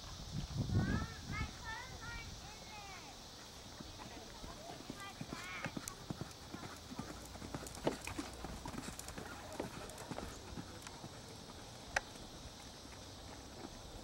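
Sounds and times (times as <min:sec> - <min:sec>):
hoofbeats on dirt: 0:03.4 - 0:14.0.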